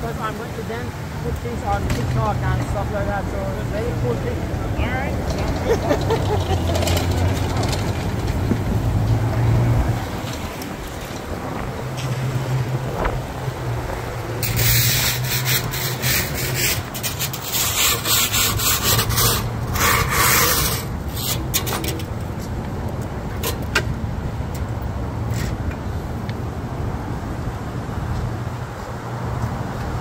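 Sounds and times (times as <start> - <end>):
low engine hum: 0.0 - 18.0.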